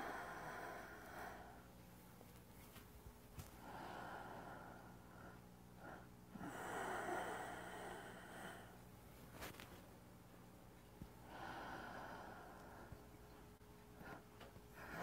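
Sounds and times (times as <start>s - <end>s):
man breathing deeply: 0.0s - 1.7s, 3.5s - 8.8s, 11.2s - 13.0s
faint steady hum: 0.0s - 15.0s.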